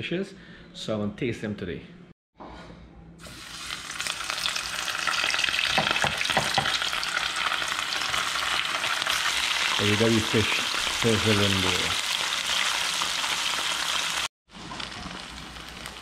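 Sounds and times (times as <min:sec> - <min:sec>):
fish sizzling in hot oil: 0:03.3 - 0:16.0.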